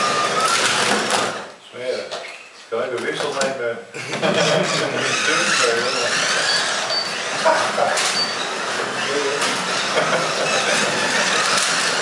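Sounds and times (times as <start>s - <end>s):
slot cars whirring on track: 0.0s - 1.5s, 4.2s - 12.0s.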